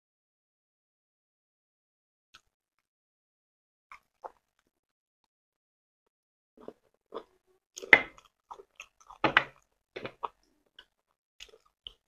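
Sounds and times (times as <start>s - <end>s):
people chewing food: 3.9s - 4.8s, 6.6s - 12.0s.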